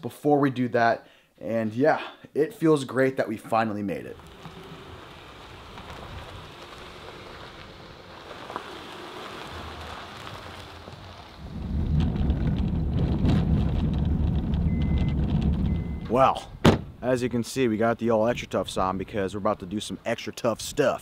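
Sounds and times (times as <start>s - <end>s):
vehicle driving on gravel: 4.0s - 16.4s
gravel knocks and rattles: 4.1s - 16.1s.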